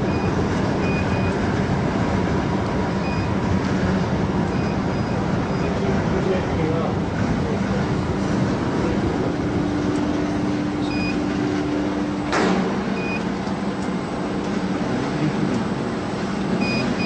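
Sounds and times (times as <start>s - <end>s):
steady hum: 0.0s - 17.0s
short electronic beeps: 3.0s - 3.3s, 10.8s - 11.2s, 13.0s - 13.2s, 16.6s - 17.0s.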